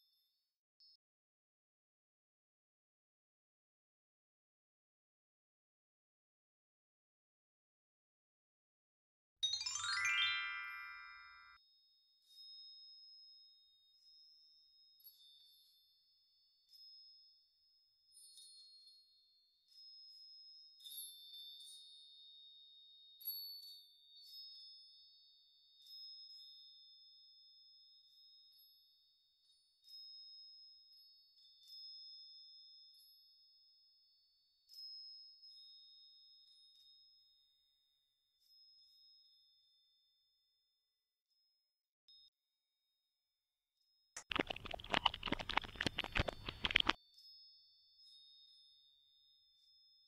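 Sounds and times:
faint bell-like music: 9.4s - 40.6s, 47.0s - 50.0s.

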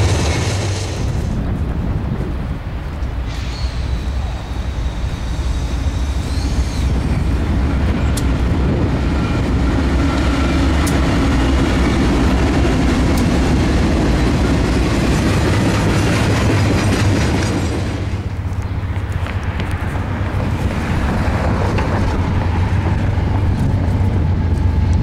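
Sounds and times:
diesel locomotive engines running: 0.0s - 25.0s
freight cars rolling by: 0.0s - 25.0s
wheels clicking over rail joints: 5.4s - 25.0s.

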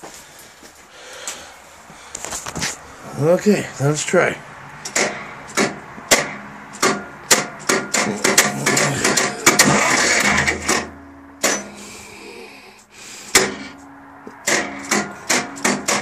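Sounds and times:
diesel engine cranking: 2.1s - 16.0s
sharp knock: 4.9s - 11.8s, 13.3s - 16.0s
low hum: 8.0s - 16.0s.

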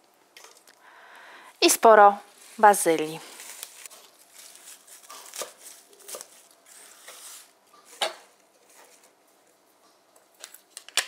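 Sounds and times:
leaves rustling: 2.3s - 7.5s.

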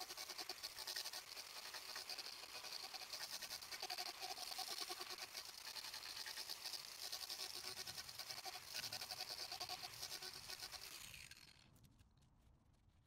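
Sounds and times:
angle grinder carving wood: 0.0s - 11.6s.

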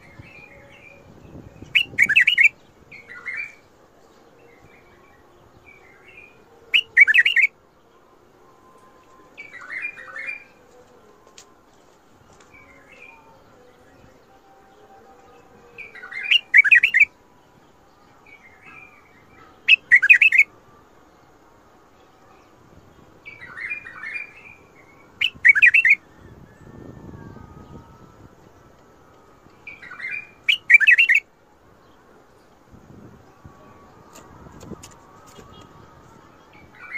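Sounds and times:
soft bird chirps: 0.0s - 8.0s, 15.8s - 20.5s, 22.1s - 28.2s, 29.1s - 32.6s.

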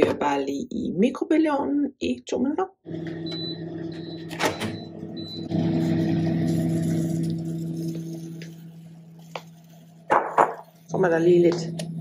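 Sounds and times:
microwave oven humming: 2.8s - 12.0s
microwave button beep: 3.1s - 5.6s.

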